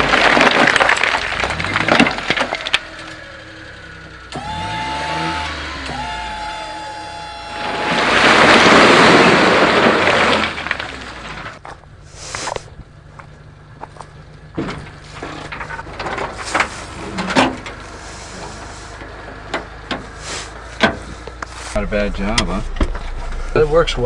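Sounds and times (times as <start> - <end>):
rocks sliding off truck bed: 0.0 - 3.3, 7.4 - 21.8
low engine hum: 10.4 - 24.0.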